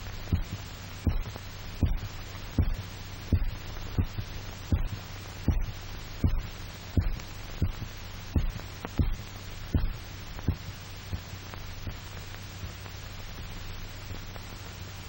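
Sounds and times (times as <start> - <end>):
steady low hum: 0.0 - 15.0
dog heartbeat thumps: 0.3 - 11.2.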